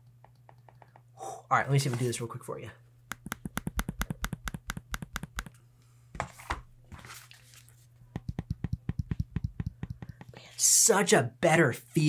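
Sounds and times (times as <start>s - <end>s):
laptop trackpad clicking: 3.1s - 5.5s, 8.2s - 10.4s.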